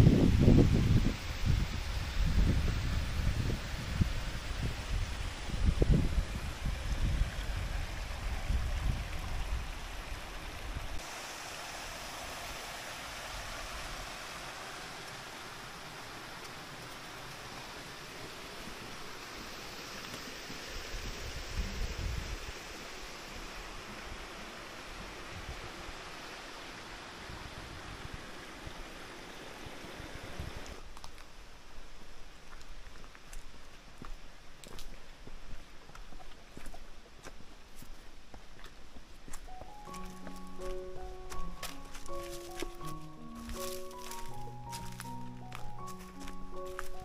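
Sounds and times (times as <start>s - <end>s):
wind buffeting microphone: 0.0s - 11.0s, 20.9s - 22.5s
rocky stream rushing: 2.3s - 30.9s, 39.3s - 47.0s.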